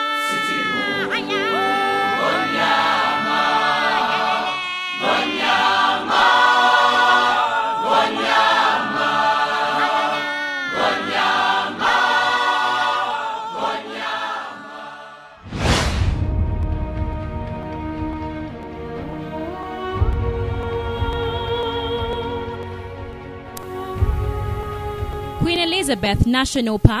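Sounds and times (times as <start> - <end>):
choir singing in harmony: 0.0 - 25.5.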